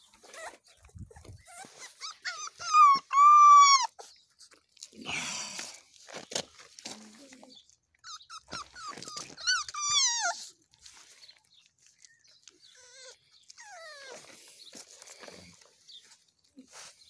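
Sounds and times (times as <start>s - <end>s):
puppy whining and yelping: 0.0s - 4.6s, 8.0s - 10.6s, 12.4s - 14.5s.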